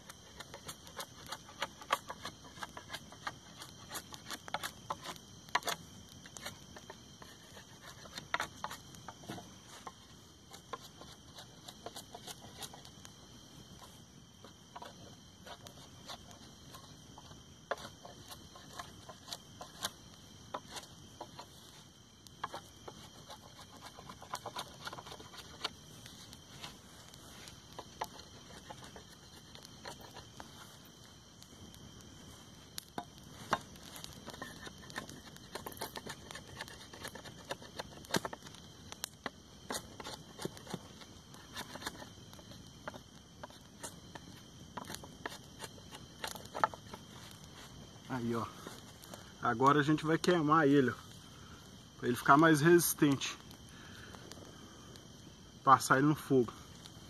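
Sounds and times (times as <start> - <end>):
knife scraping bark: 0.0 - 12.9, 14.7 - 30.7, 33.0 - 38.6, 39.6 - 49.3
campfire crackling: 0.0 - 57.0.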